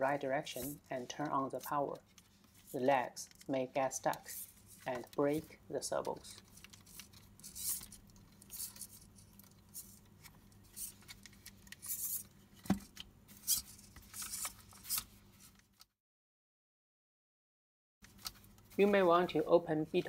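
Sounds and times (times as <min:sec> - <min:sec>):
hands handling plastic toy: 0:06.1 - 0:15.8.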